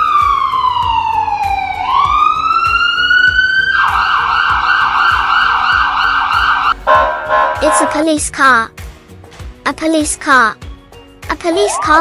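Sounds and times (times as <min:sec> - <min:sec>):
ambulance siren wailing and yelping: 0:00.0 - 0:08.0, 0:11.5 - 0:12.0.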